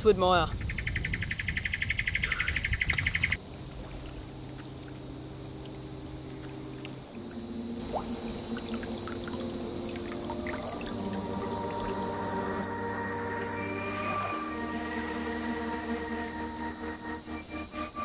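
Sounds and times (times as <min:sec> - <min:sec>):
insect call pulsing rapidly: 0:00.5 - 0:18.0
water trickling and splashing: 0:03.0 - 0:13.6
background music: 0:03.5 - 0:18.0.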